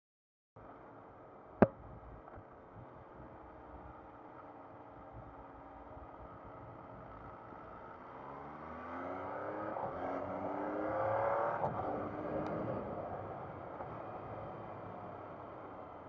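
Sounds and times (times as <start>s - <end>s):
motorcycle engine accelerating: 6.2s - 14.7s.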